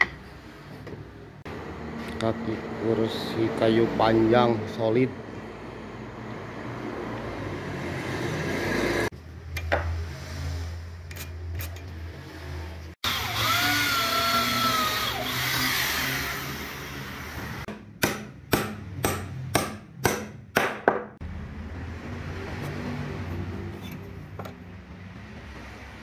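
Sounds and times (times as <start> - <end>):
cordless drill whining: 13.0 - 17.0
hammer striking wood: 17.7 - 21.2.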